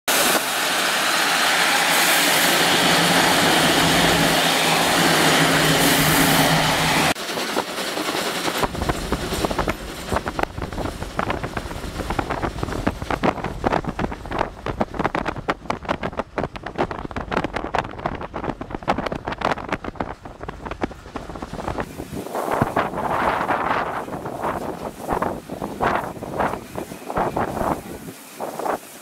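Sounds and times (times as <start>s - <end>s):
steam locomotive exhaust beats: 0.1s - 29.0s
steam train rushing past: 0.1s - 29.0s
wind noise: 8.5s - 29.0s.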